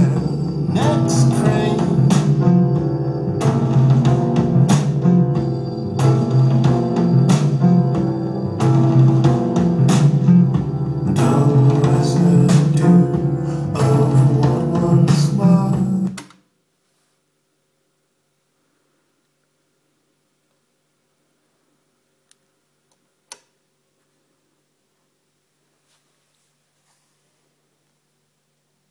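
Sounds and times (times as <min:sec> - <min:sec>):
music with guitar and drums: 0:00.0 - 0:16.2.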